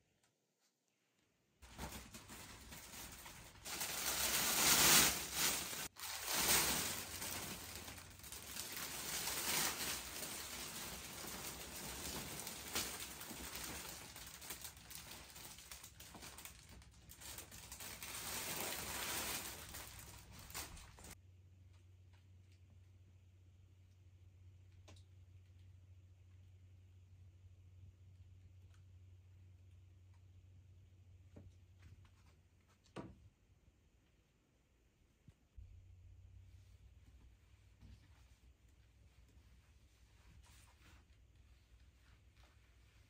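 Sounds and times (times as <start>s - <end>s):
packaging rustling and crinkling: 1.6s - 21.2s.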